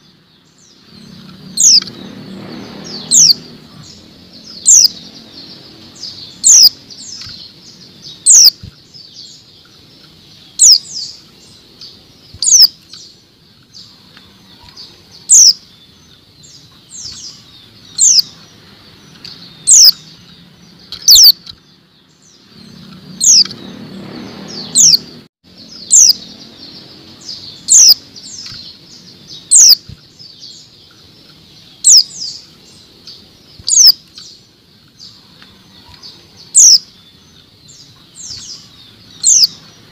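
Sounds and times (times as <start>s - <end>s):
soft bird twittering: 0.0s - 39.9s
low rumble: 0.6s - 8.2s
bird calling sharp chips: 6.0s - 21.6s, 27.2s - 39.7s.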